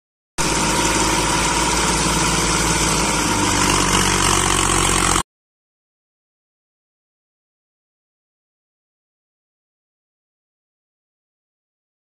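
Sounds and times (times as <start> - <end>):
tractor diesel engine running: 0.4 - 5.2.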